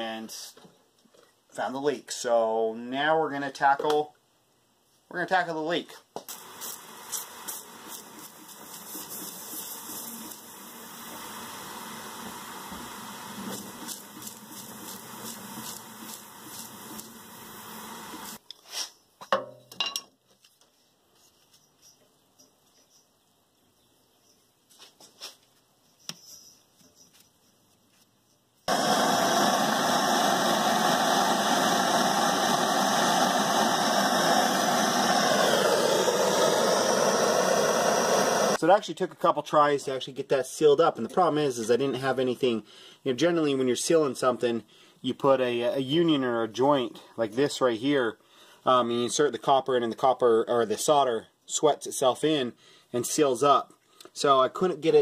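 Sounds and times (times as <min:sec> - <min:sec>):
gas hissing from leak: 0:06.3 - 0:18.4, 0:28.7 - 0:38.6.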